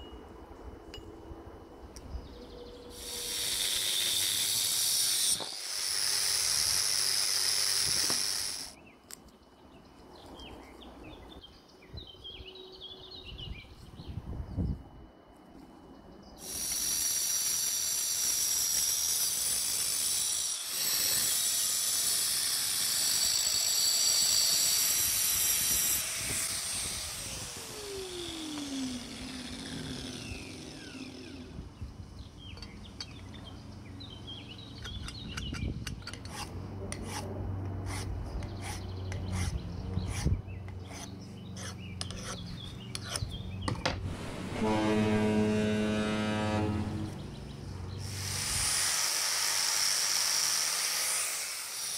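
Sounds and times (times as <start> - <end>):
angle grinder cutting metal: 2.9 - 8.8, 16.4 - 31.8, 44.0 - 51.9
grinder motor winding down: 3.0 - 8.8, 16.4 - 32.3, 44.0 - 51.9.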